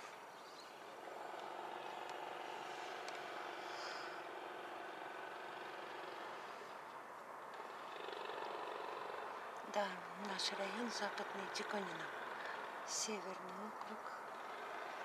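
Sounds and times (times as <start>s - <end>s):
distant city traffic hum: 0.0s - 15.0s
faint ticks: 2.8s - 4.0s.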